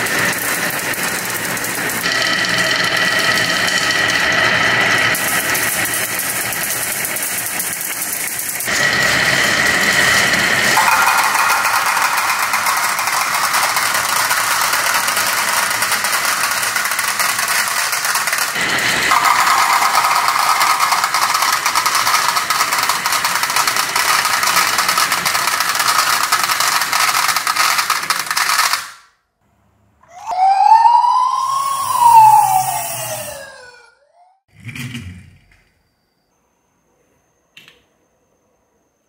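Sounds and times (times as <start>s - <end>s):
marbles clattering down a wooden run: 0.0s - 9.1s, 10.0s - 29.0s
toy electronic siren wailing: 19.1s - 22.4s, 30.0s - 34.4s.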